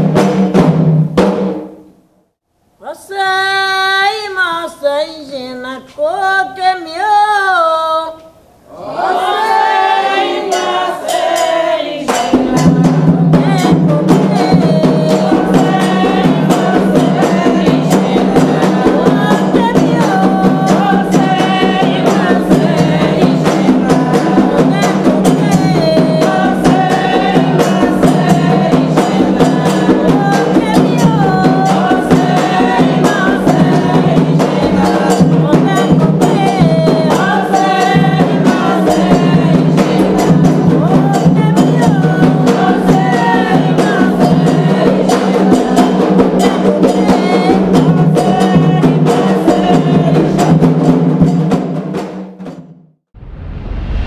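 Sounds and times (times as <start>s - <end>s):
drums: 0.0s - 2.0s, 9.2s - 54.0s
woman singing a chant: 2.8s - 50.7s
chorus singing: 8.7s - 50.9s.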